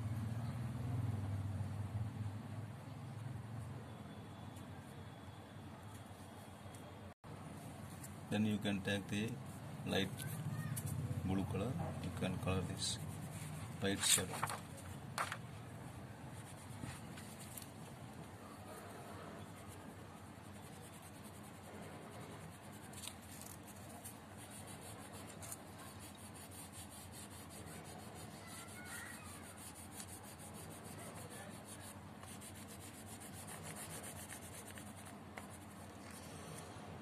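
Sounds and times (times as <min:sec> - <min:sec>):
pencil shading on paper: 0:18.6 - 0:36.7.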